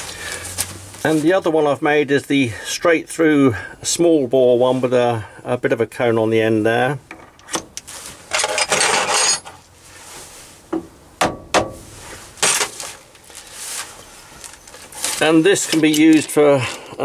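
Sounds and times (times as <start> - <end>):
metal clinks and knocks: 8.3 - 9.6
hands rustling on parts: 11.8 - 17.0.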